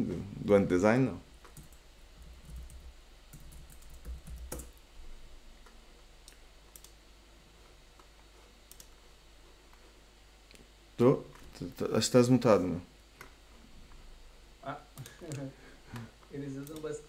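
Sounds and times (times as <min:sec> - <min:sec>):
low steady hum: 0:00.0 - 0:17.0
keyboard and mouse clicks: 0:02.4 - 0:04.8, 0:05.6 - 0:07.0, 0:08.7 - 0:09.0.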